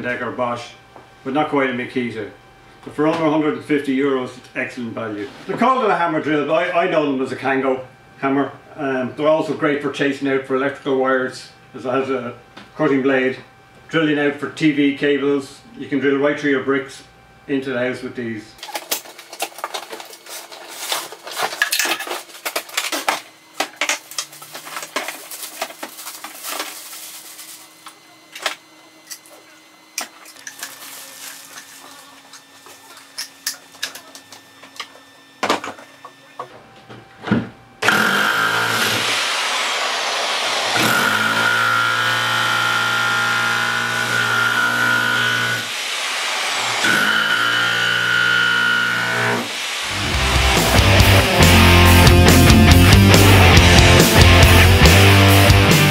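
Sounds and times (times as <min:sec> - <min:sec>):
hammer drill chiselling concrete: 0:37.8 - 0:39.3, 0:40.5 - 0:55.1.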